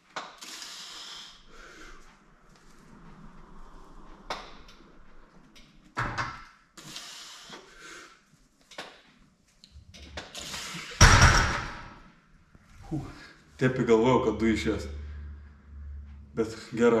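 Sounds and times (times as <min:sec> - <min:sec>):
hard breathing and strained exhales: 0:10.2 - 0:11.0.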